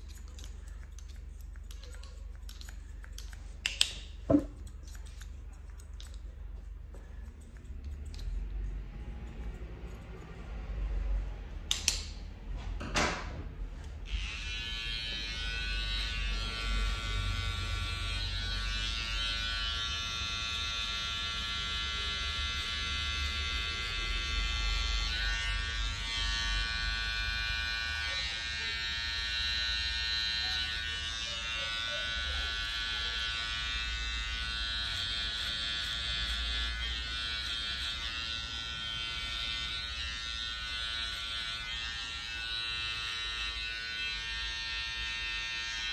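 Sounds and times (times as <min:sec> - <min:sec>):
electric hair clipper buzzing: 0:14.0 - 0:45.9.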